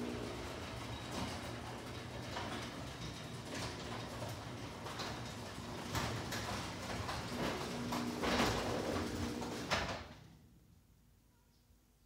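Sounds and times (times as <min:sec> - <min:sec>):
garage door opener running: 0:00.0 - 0:10.4
clicks and rattles: 0:00.7 - 0:10.0.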